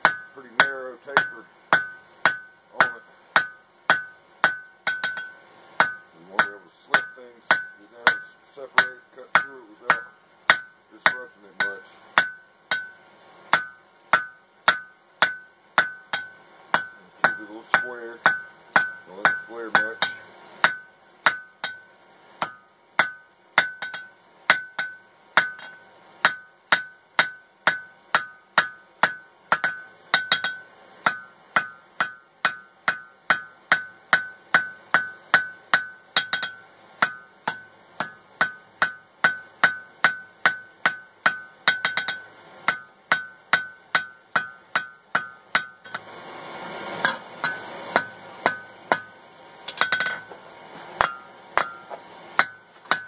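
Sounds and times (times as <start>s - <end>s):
anvil ringing: 0.0s - 13.0s, 47.0s - 50.3s, 51.0s - 53.0s
hammer striking steel on anvil: 0.0s - 46.1s, 46.9s - 50.4s, 51.0s - 53.0s.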